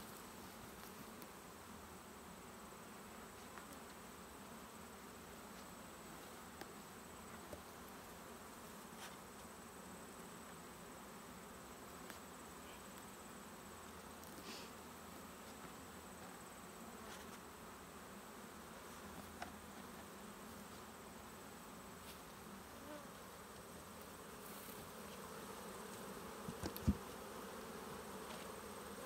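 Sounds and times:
honeybees humming: 14.8s - 29.0s.

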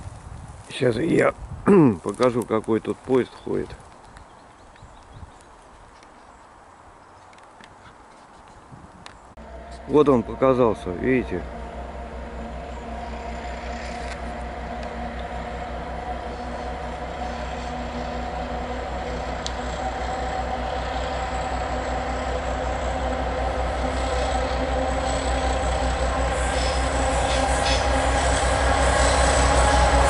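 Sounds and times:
diesel locomotive engine throbbing: 9.3s - 30.0s.

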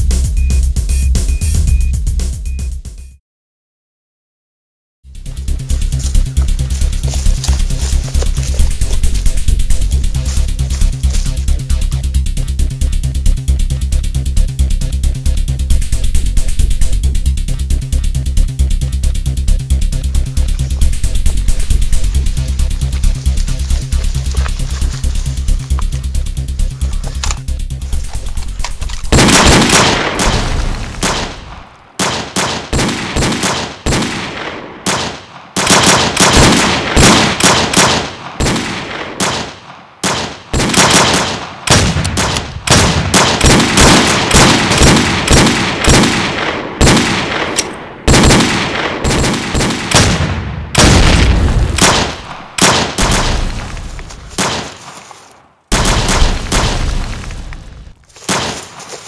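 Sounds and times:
rapid gunshots: 28.6s - 54.9s, 55.7s - 57.2s, 58.3s - 58.8s.

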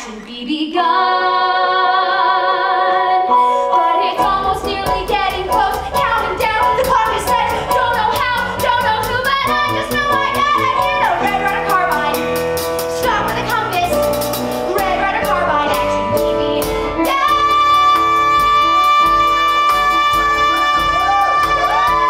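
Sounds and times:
band playing: 4.2s - 22.0s
woman singing into microphone: 14.7s - 22.0s.

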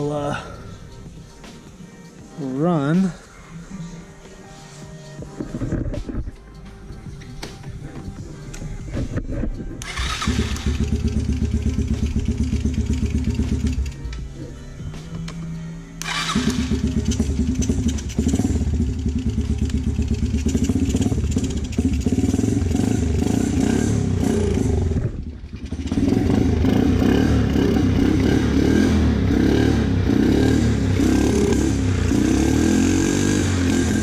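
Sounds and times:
small engine idling: 9.9s - 14.0s, 16.0s - 28.1s.

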